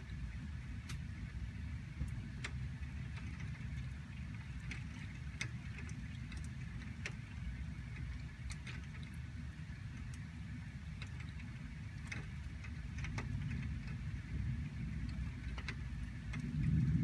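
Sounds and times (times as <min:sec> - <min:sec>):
raindrops ticking on window glass: 0:00.0 - 0:17.0
steady rain hiss: 0:00.0 - 0:17.0
low rumble: 0:12.4 - 0:17.0.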